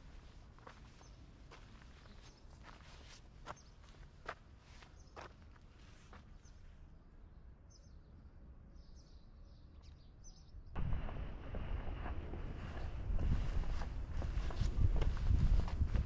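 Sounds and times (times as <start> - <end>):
small birds chirping: 0.0 - 10.8
low rumbling noise: 10.8 - 16.0
footsteps: 11.0 - 16.0.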